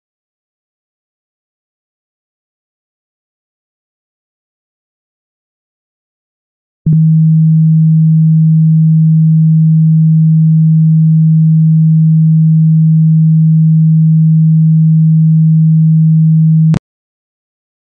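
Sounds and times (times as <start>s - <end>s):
click: 6.9s - 7.1s
low sine tone: 6.9s - 16.8s.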